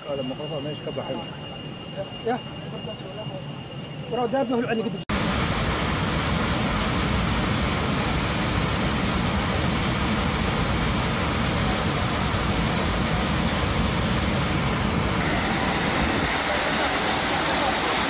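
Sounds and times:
aircraft engine noise: 0:00.0 - 0:18.0
air rushing roar in cabin: 0:05.0 - 0:18.0.

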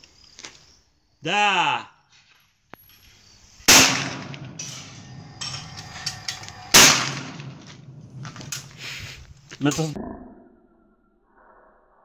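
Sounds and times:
shotgun shot with echo: 0:03.7 - 0:04.7, 0:06.7 - 0:07.6.

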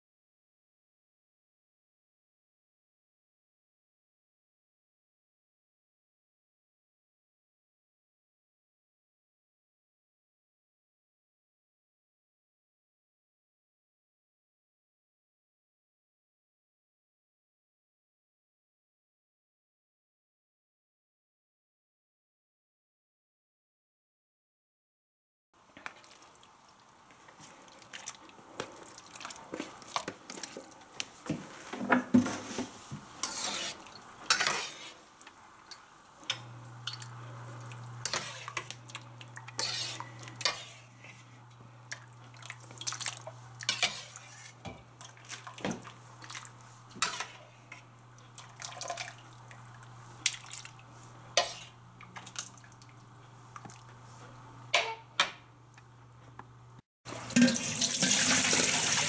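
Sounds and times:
water splashing and dripping: 0:42.3 - 0:43.3, 0:48.4 - 0:50.8, 0:57.1 - 0:59.0.

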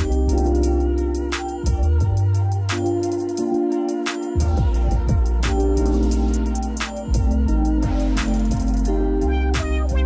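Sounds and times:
light hi-hat ticks: 0:00.0 - 0:10.0
deep bass notes: 0:04.4 - 0:10.0
drum hits: 0:09.6 - 0:10.0.

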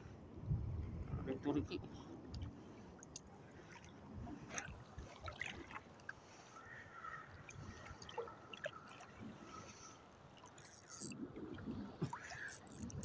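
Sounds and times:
shallow water lapping: 0:01.9 - 0:13.0
small clicks: 0:12.4 - 0:13.0.

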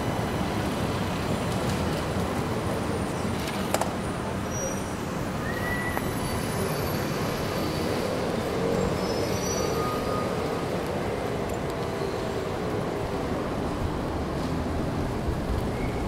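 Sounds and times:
city street traffic: 0:00.0 - 0:16.0.

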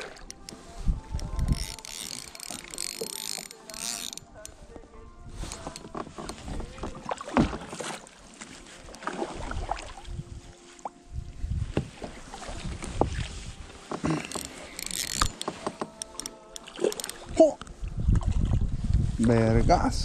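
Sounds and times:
water against hull: 0:00.0 - 0:19.4
fishing reel clicks and knocks: 0:00.2 - 0:04.6, 0:05.5 - 0:06.4, 0:14.2 - 0:17.2
wind rumble on microphone: 0:00.7 - 0:01.7, 0:09.4 - 0:13.8, 0:17.2 - 0:20.0.

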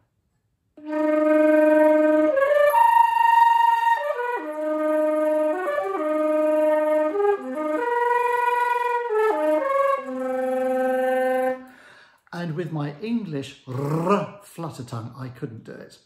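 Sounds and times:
flute flutter-tonguing: 0:00.8 - 0:11.7.

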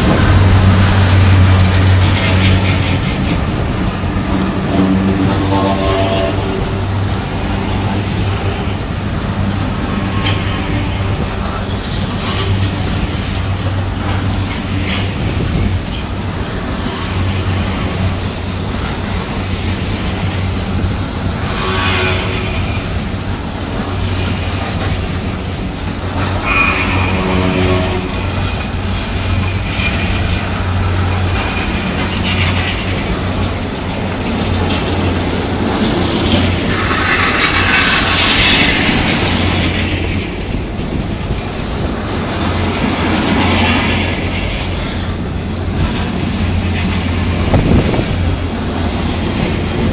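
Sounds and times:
train wagons rumbling past: 0:00.0 - 0:49.9
metallic squeals from wagons: 0:26.3 - 0:28.2.

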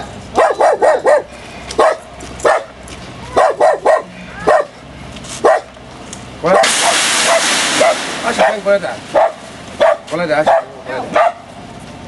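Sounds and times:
dog barking: 0:00.4 - 0:02.7, 0:03.3 - 0:04.8, 0:05.4 - 0:05.7, 0:09.2 - 0:11.5.

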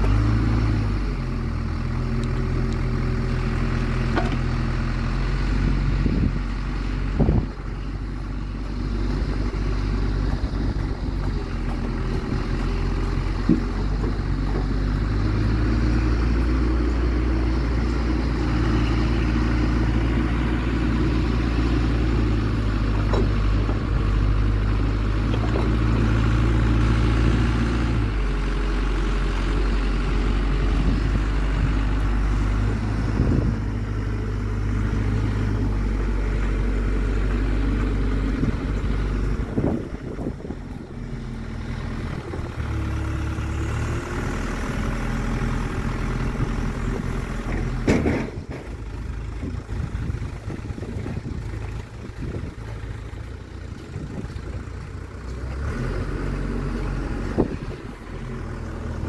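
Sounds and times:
excavator diesel engine running: 0:00.0 - 0:59.0
short clunks: 0:04.0 - 0:04.6, 0:10.2 - 0:15.0, 0:22.9 - 0:24.0, 0:25.2 - 0:26.0, 0:47.4 - 0:49.0.

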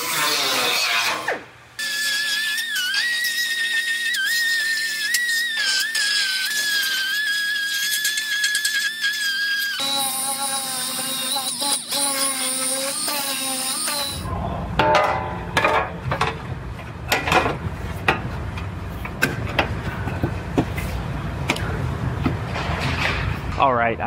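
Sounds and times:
grinder whining on sheet metal: 0:00.0 - 0:14.3
low shop rumble: 0:14.1 - 0:24.0.

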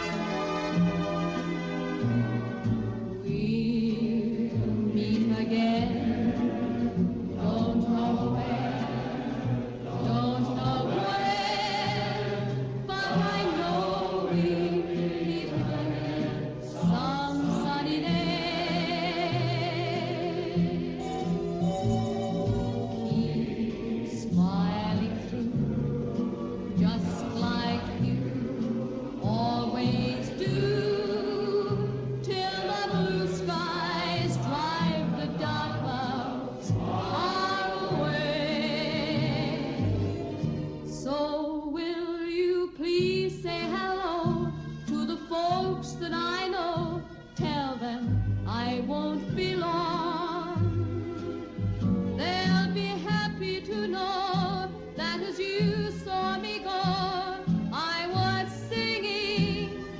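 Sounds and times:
choir singing: 0:04.0 - 0:41.1
choral voices chanting: 0:04.6 - 0:21.4, 0:22.7 - 0:40.8.

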